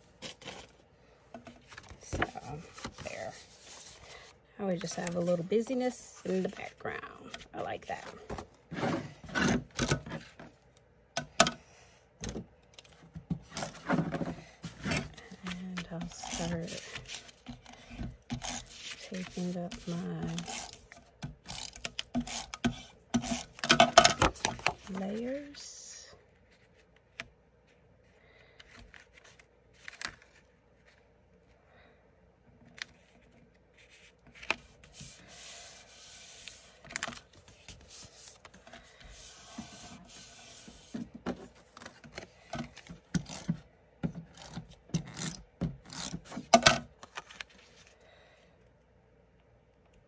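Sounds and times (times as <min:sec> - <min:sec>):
paper rubbing and rustling: 0:01.6 - 0:05.3, 0:13.6 - 0:20.8, 0:28.6 - 0:31.1, 0:32.9 - 0:43.6.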